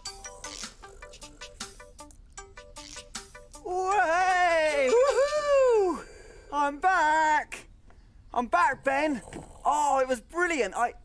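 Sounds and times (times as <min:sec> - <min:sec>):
plucked background music: 0:00.0 - 0:05.4
high cartoon-like voice shouting: 0:03.7 - 0:06.0.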